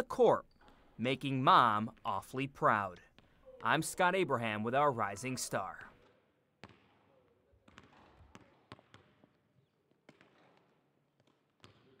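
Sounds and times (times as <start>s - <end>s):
basketballs bouncing on hardwood: 6.6s - 7.0s, 7.6s - 9.4s, 10.0s - 12.0s.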